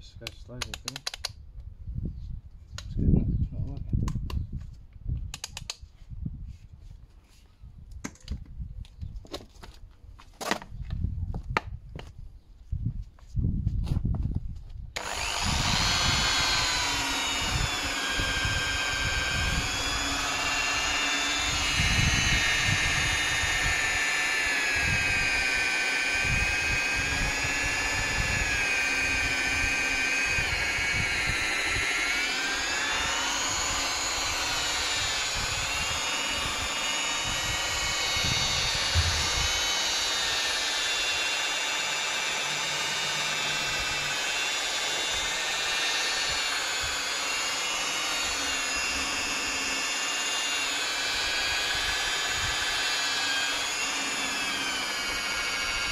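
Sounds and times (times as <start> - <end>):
electric polisher whining: 15.0 - 55.9.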